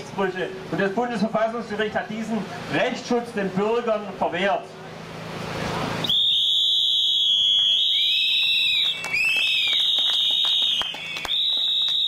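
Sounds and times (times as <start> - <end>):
whistles blowing: 6.0 - 12.0.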